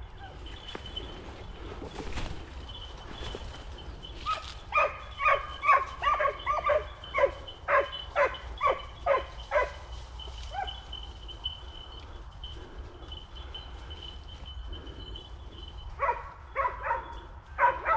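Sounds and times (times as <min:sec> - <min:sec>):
hunting dogs barking: 0:04.2 - 0:11.1, 0:14.7 - 0:17.9.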